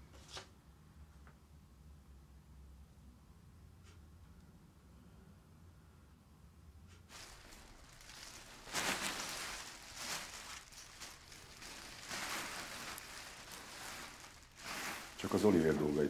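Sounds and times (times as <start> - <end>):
rustling of belongings being packed: 7.1 - 16.0.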